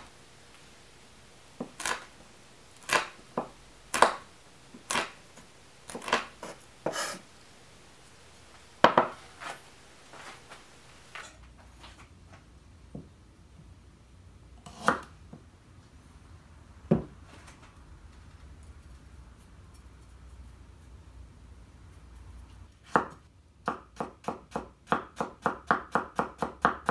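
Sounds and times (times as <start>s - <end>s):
knife chopping on wooden board: 1.6s - 2.1s, 2.8s - 5.2s, 5.9s - 7.2s, 8.8s - 9.2s.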